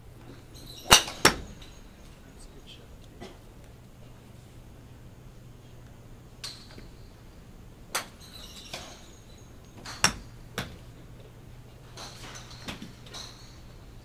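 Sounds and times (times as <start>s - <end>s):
golf clubs striking balls: 0.2s - 2.3s, 5.8s - 14.0s.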